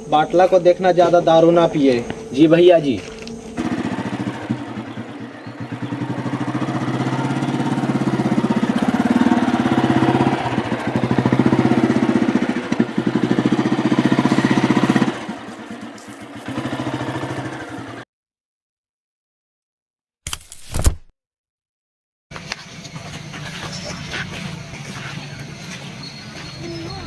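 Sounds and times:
motorcycle engine running: 0:01.6 - 0:18.0.

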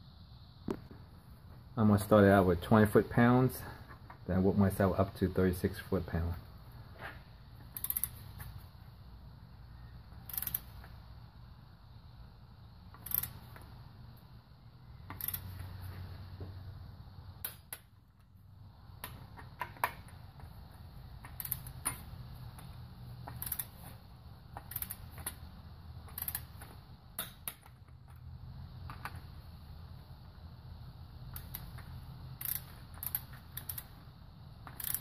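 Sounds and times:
torque wrench clicking: 0:07.7 - 0:08.5, 0:10.2 - 0:10.9, 0:12.9 - 0:13.7, 0:15.1 - 0:15.6, 0:21.2 - 0:22.1, 0:23.2 - 0:23.8, 0:24.5 - 0:25.4, 0:26.0 - 0:28.0, 0:31.3 - 0:34.0, 0:34.6 - 0:35.0.

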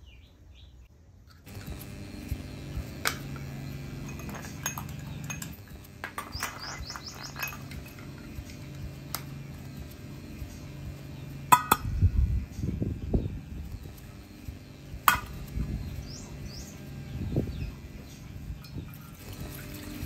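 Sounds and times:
bird chirping: 0:00.0 - 0:00.9, 0:04.8 - 0:07.9, 0:12.3 - 0:19.3
low steady hum: 0:00.2 - 0:20.0.

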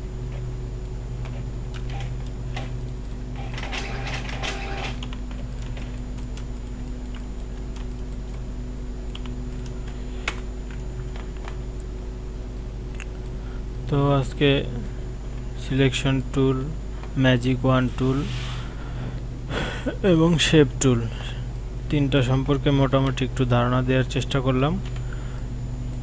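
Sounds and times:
steady electrical hum: 0:00.0 - 0:26.0
keyboard and mouse clicking: 0:03.7 - 0:10.4.

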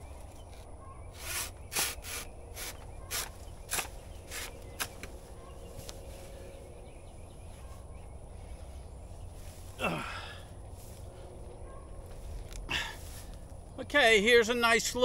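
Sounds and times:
hand saw cutting stalk: 0:01.2 - 0:05.1.

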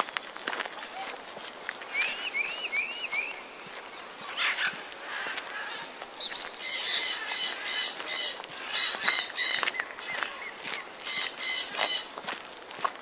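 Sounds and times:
bird harsh chattering call: 0:06.6 - 0:12.0.

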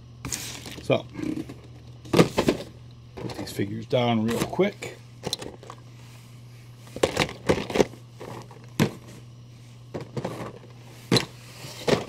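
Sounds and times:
steady low hum: 0:00.0 - 0:12.0
plastic packaging knocks and rattles: 0:07.0 - 0:09.2, 0:09.9 - 0:12.0.

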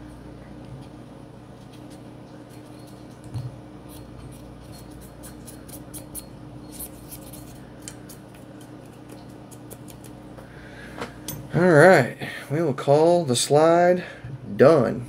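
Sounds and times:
cotton swab scratching metal: 0:03.9 - 0:07.6.

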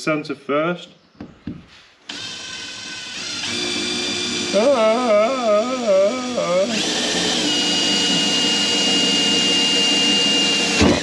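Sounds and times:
cordless drill whining: 0:02.1 - 0:11.0
man's voice: 0:04.5 - 0:06.8.

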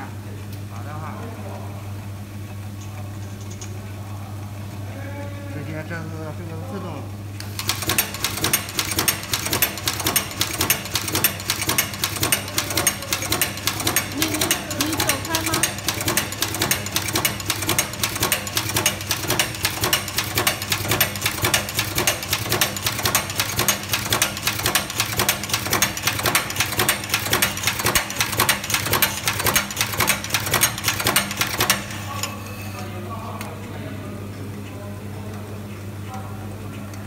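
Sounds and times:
steady motor hum: 0:00.0 - 0:37.0
punching machine clattering: 0:07.5 - 0:32.0.

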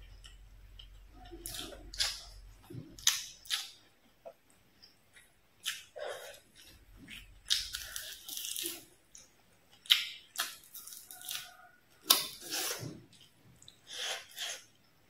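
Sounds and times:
chewing: 0:00.0 - 0:14.7.

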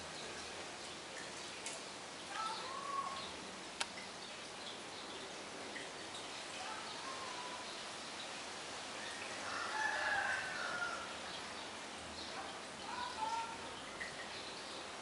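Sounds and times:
steady background hiss: 0:00.0 - 0:15.0
distant rooster crowing: 0:09.2 - 0:11.2.

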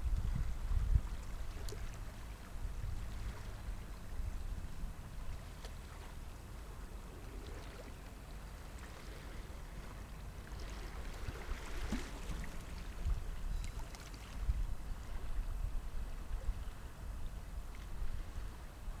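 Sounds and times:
wind rumble on microphone: 0:00.0 - 0:19.0
ripples lapping against rocks: 0:10.5 - 0:14.5.

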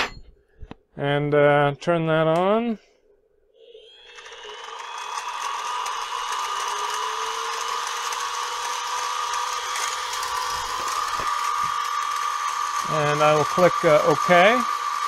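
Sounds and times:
mill spindle gear whine: 0:03.6 - 0:15.0.

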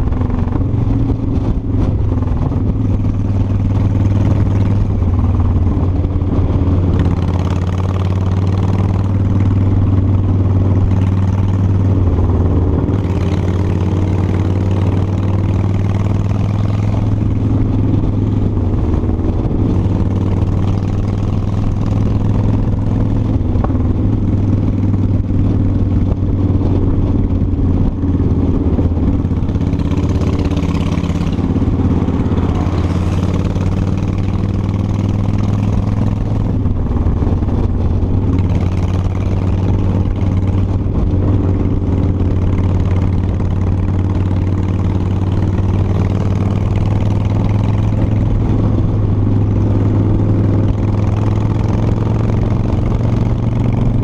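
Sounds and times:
motorcycle engine running: 0:00.0 - 0:54.0
wind rushing: 0:16.3 - 0:43.5.

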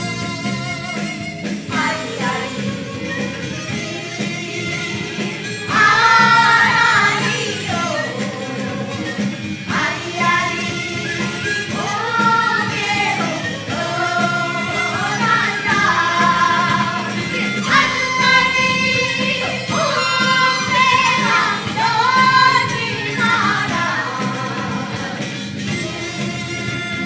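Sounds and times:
women singing folk song together: 0:01.7 - 0:02.8, 0:05.7 - 0:26.5.

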